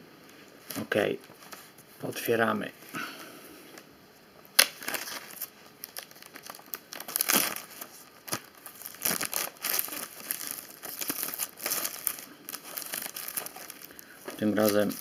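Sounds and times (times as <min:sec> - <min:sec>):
plastic blister pack crinkling: 0:04.6 - 0:15.0.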